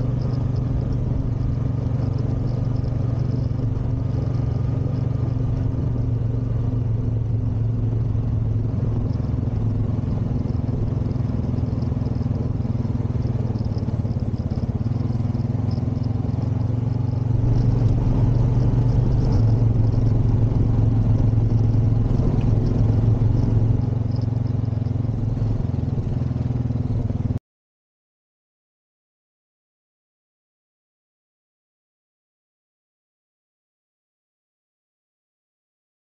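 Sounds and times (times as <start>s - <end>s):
atv engine running: 0.0s - 27.4s.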